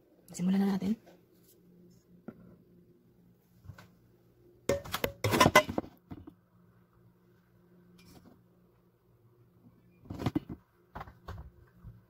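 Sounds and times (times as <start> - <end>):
faint steady hum: 0.0 - 12.0
kitchenware clattering: 4.7 - 5.9.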